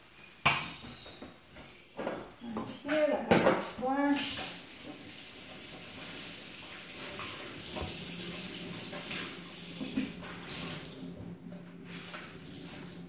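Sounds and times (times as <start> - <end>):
cloth rinsed under water: 3.8 - 13.0
tap running into metal sink: 7.0 - 10.8.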